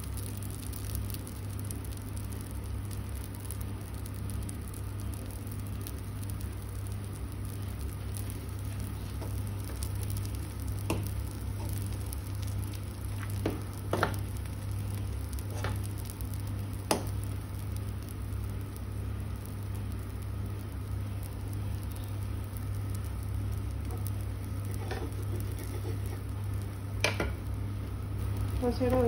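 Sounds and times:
sharp pops and ticks: 0:00.0 - 0:27.5
batter sizzling on a hot griddle: 0:00.0 - 0:29.0.

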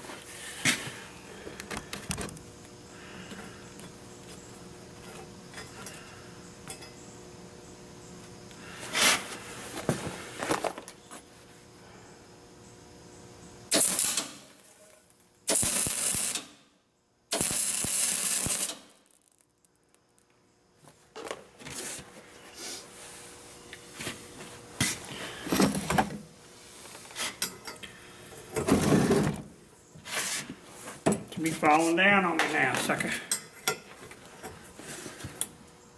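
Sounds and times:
welder arcing: 0:13.7 - 0:14.8, 0:15.4 - 0:16.7, 0:17.3 - 0:20.4.

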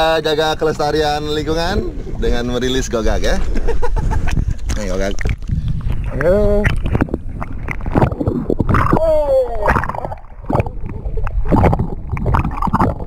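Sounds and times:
sea water gurgling and sloshing: 0:00.8 - 0:13.0
water splashes: 0:04.5 - 0:13.0
person crying out: 0:08.9 - 0:09.7.

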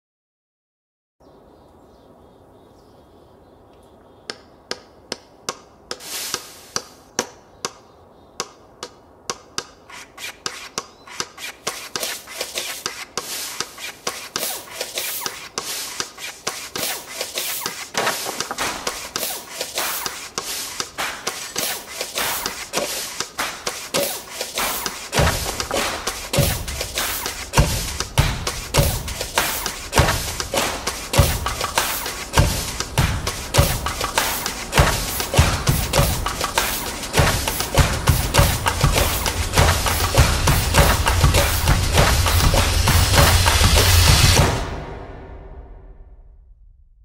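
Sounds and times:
sharp knocks and taps: 0:04.3 - 0:07.8, 0:08.4 - 0:44.4
push broom sweeping concrete: 0:05.9 - 0:07.0, 0:09.6 - 0:44.5
shovel scraping gravelly soil: 0:06.0 - 0:06.8, 0:09.9 - 0:44.4.

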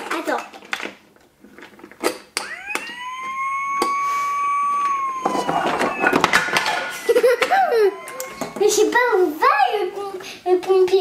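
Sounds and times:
child wailing: 0:02.4 - 0:09.4.

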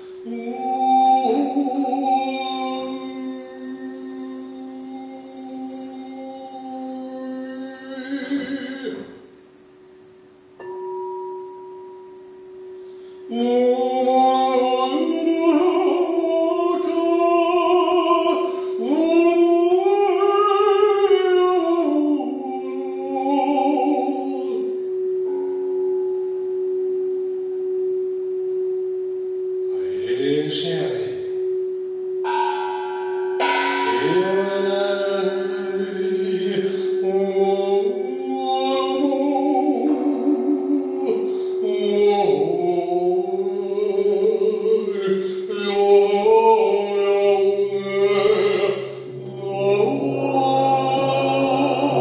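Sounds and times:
men singing wordless notes: 0:00.0 - 0:09.2, 0:13.3 - 0:24.8, 0:32.3 - 0:52.0
singing bowl tone: 0:00.0 - 0:52.0.

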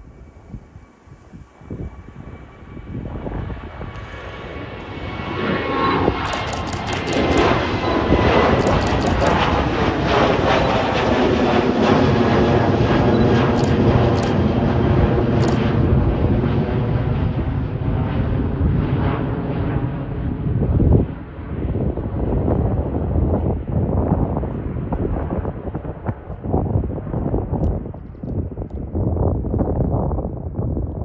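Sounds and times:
jet engines roaring overhead: 0:00.0 - 0:31.0.

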